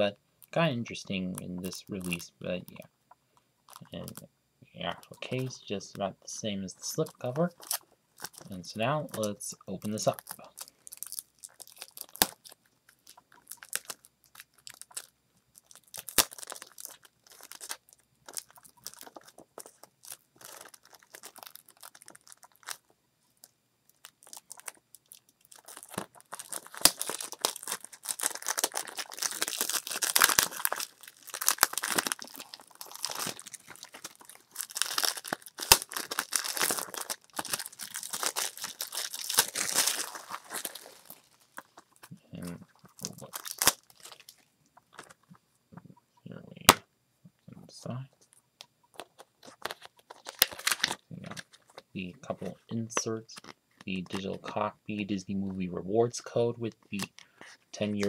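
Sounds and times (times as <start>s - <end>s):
plastic wrap crinkling and tearing: 6.8s - 45.3s, 48.9s - 54.6s.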